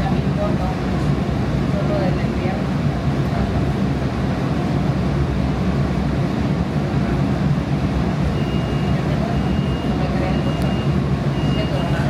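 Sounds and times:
low rumble and hum inside rail car: 0.0s - 12.0s.

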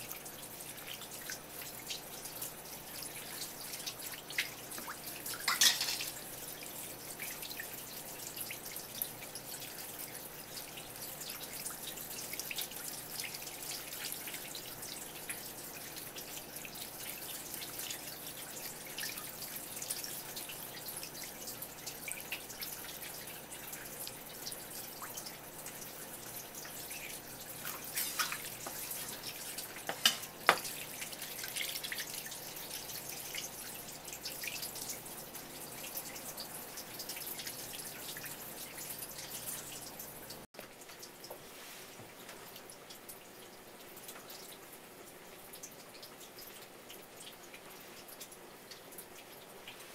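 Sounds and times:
tap water running and splashing: 0.0s - 49.9s.

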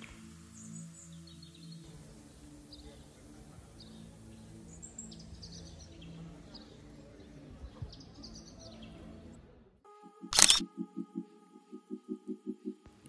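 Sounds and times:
small birds chirping: 0.0s - 9.1s.

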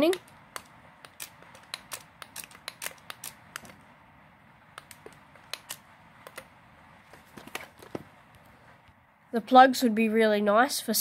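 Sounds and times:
toy car plastic clicks and taps: 0.0s - 3.8s.

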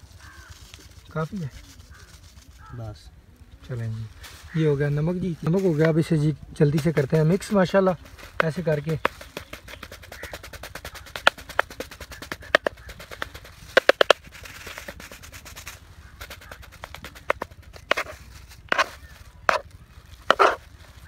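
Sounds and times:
knife chopping on plastic board: 18.7s - 18.9s, 20.3s - 20.6s.

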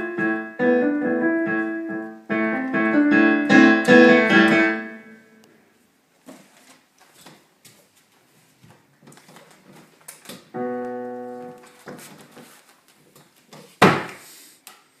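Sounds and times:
digital piano chord: 0.0s - 5.4s, 10.6s - 11.7s
loud thump: 13.8s - 14.2s.

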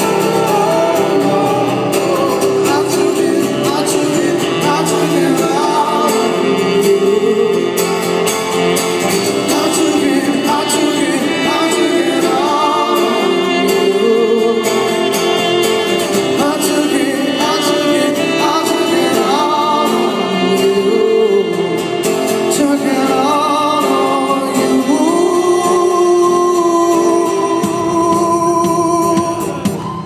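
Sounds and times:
acoustic guitar: 0.0s - 30.0s
person singing: 0.0s - 30.0s.

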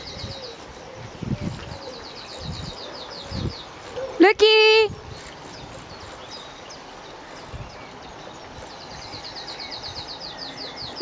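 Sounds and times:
bird chirps: 5.0s - 11.0s.

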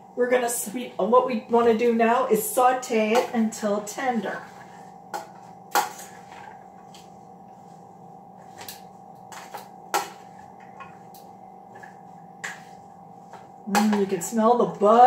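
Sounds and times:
steady low hum: 0.0s - 15.0s
vegetables sauteing: 0.2s - 15.0s
spatula scraping frying pan: 2.0s - 8.7s, 9.3s - 11.1s, 11.7s - 15.0s.

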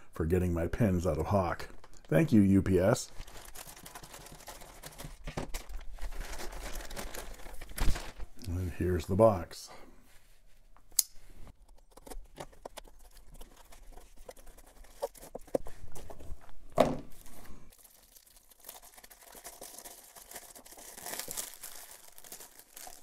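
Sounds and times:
plastic wrap crinkling: 1.6s - 8.4s, 17.1s - 23.0s
thump: 16.8s - 17.1s.

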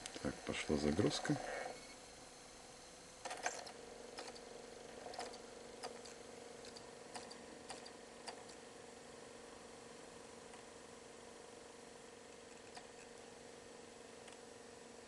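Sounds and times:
spinning disc hum: 0.0s - 15.0s
light mechanical clicks: 3.2s - 8.6s, 12.3s - 13.1s.

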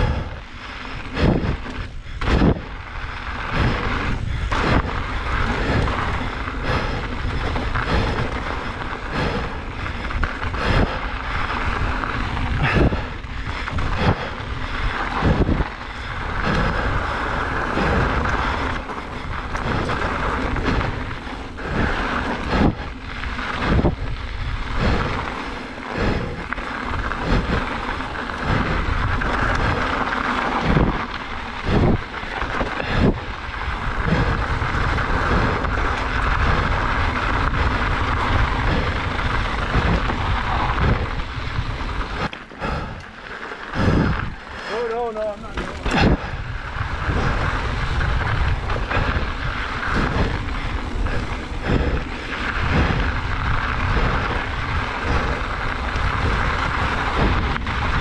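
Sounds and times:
tyres rolling on gravel: 0.0s - 58.0s
wind buffeting microphone: 0.0s - 58.0s
bike knocks and rattles: 45.0s - 58.0s.

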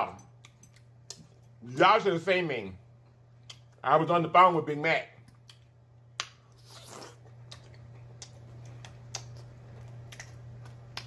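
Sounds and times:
steady low hum: 0.0s - 11.0s
pickle crunching while chewed: 6.5s - 11.0s.

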